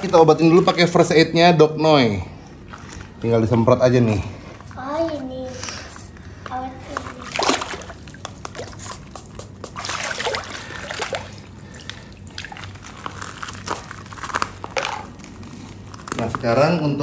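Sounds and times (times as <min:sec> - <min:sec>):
water sloshing and splashing: 0:06.9 - 0:09.0, 0:09.6 - 0:13.7.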